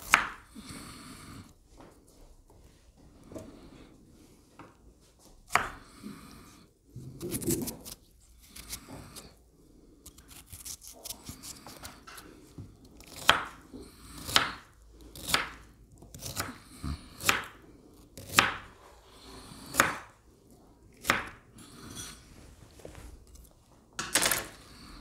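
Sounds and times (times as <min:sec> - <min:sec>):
knife chopping on wooden board: 0:00.0 - 0:00.4, 0:05.5 - 0:05.8, 0:13.0 - 0:13.6, 0:14.2 - 0:14.6, 0:15.2 - 0:16.6, 0:17.2 - 0:17.6, 0:18.2 - 0:18.7, 0:19.6 - 0:20.1, 0:21.0 - 0:21.4.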